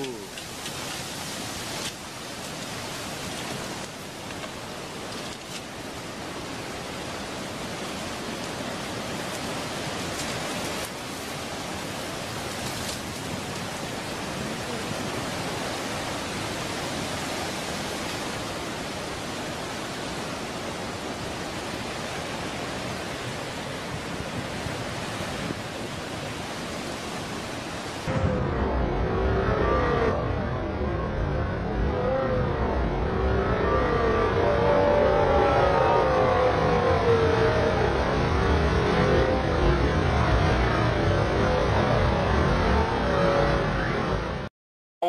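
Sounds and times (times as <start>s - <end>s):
steady rushing hiss: 0.0s - 28.1s.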